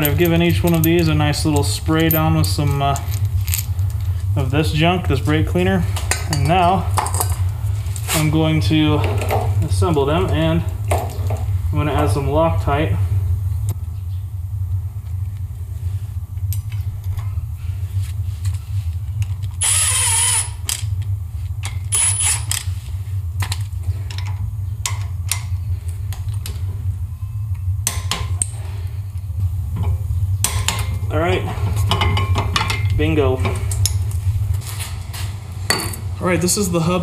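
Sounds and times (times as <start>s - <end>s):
steady low hum: 0.0s - 37.0s
power ratchet whining: 19.6s - 20.9s, 21.9s - 22.7s.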